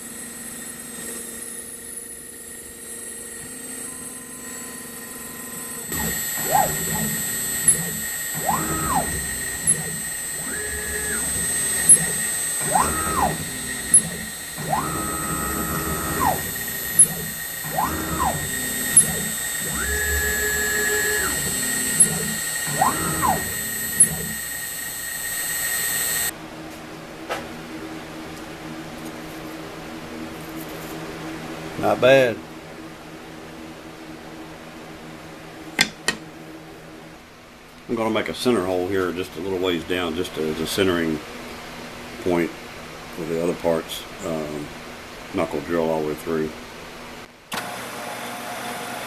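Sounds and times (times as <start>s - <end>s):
machine axes whine: 0.0s - 26.4s
router spindle milling plastic: 5.2s - 26.3s.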